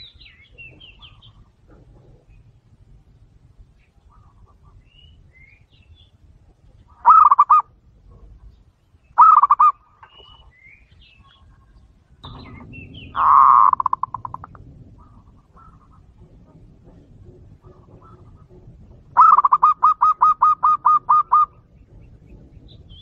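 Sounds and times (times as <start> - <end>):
dove cooing in staccato bursts: 0.6 - 4.9, 6.6 - 8.5, 9.2 - 9.9, 12.3 - 23.0
faint high bird chirps: 8.5 - 14.5.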